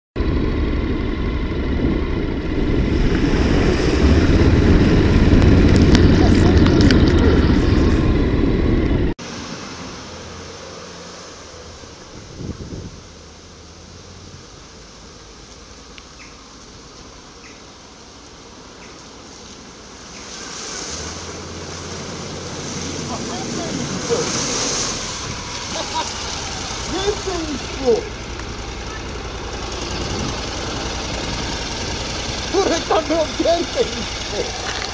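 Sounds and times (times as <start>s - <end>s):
motorcycle engine rumble: 0.2s - 34.9s
water spray hiss: 9.2s - 28.3s.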